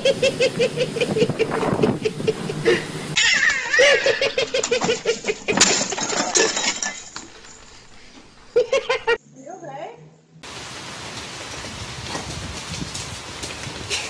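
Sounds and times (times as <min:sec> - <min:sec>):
man laughing hard: 0:00.0 - 0:06.6, 0:08.6 - 0:09.2.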